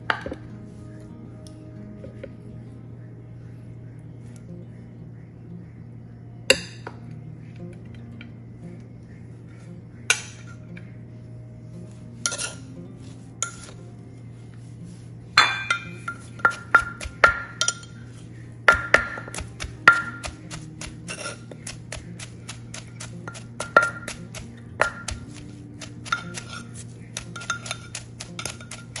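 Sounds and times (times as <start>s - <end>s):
metal spoon clinking on mortar: 12.3s - 12.6s, 15.4s - 18.0s, 26.0s - 29.0s
wooden pestle pounding in mortar: 16.4s - 17.6s, 18.7s - 29.0s.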